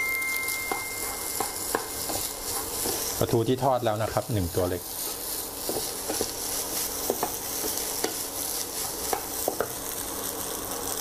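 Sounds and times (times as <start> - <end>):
rice sizzling in a pan: 0.0 - 11.0
spatula tapping against pan: 0.7 - 3.0
wooden spatula stirring: 1.0 - 4.2, 5.1 - 9.8.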